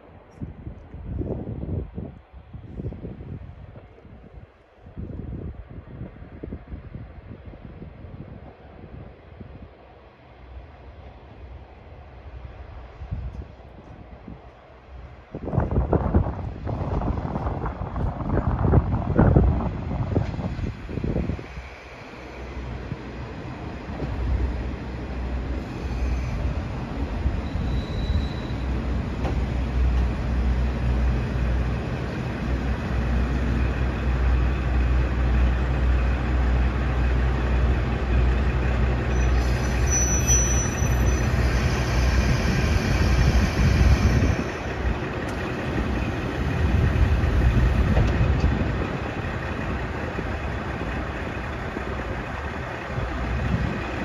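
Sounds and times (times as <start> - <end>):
diesel engines droning: 20.8 - 54.0
train brakes squealing: 25.5 - 29.6, 38.8 - 44.8.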